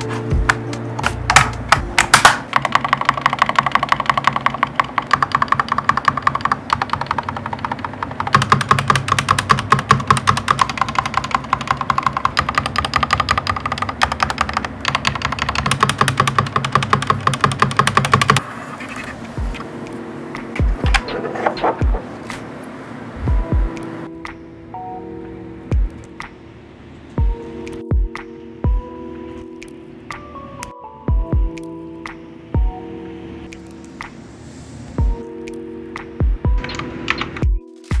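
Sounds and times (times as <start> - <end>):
mechanical keyboard typing: 1.3 - 18.4.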